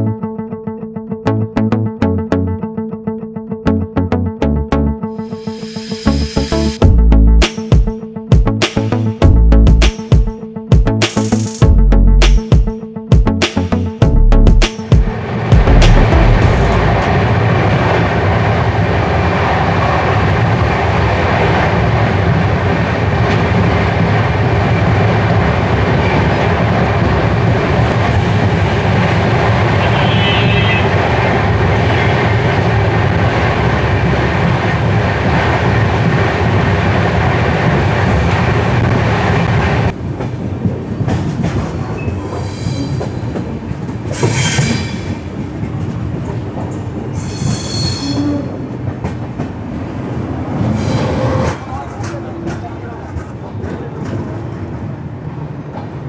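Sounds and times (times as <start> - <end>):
train rumbling and rattling: 14.6 - 56.0
high-pitched wheel squeals: 47.2 - 48.6.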